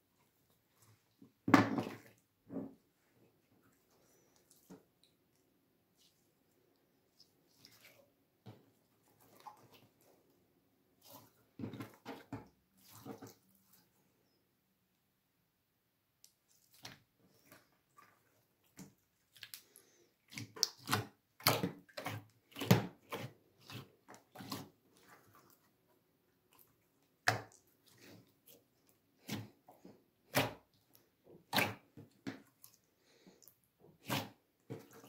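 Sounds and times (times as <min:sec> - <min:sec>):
slime squelching and popping: 0:18.6 - 0:25.6.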